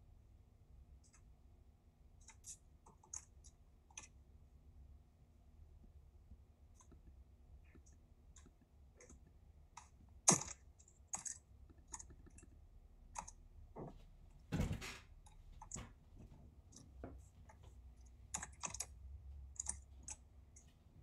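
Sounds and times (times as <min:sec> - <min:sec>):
mouse and keyboard clicks: 0:02.2 - 0:04.2, 0:07.7 - 0:13.4, 0:18.3 - 0:20.7.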